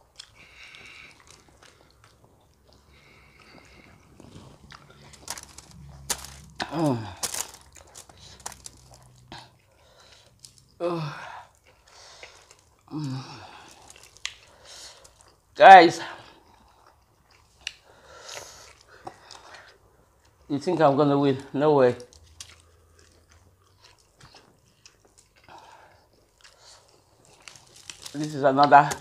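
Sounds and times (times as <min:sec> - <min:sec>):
chewing: 0:00.0 - 0:10.8, 0:11.4 - 0:15.5, 0:16.3 - 0:20.5, 0:22.0 - 0:29.0
picking at noodles on foil: 0:00.0 - 0:10.8, 0:11.4 - 0:15.4, 0:21.2 - 0:29.0
hands tearing fried chicken: 0:00.2 - 0:10.8, 0:11.5 - 0:15.4, 0:22.0 - 0:29.0.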